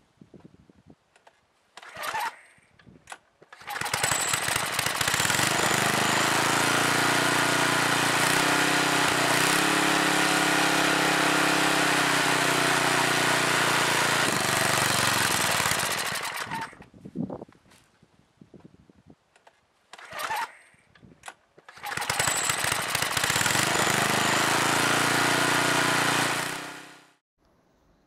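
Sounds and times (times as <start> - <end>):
small engine running at high speed: 3.6 - 16.8, 21.8 - 27.2.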